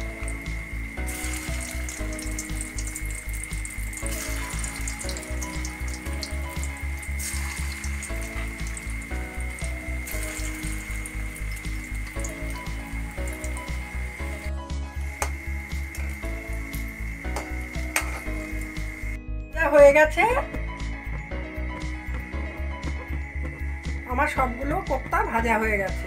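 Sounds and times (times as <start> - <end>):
food deep-frying in oil: 0.0 - 19.2
background music with beat: 0.0 - 26.0.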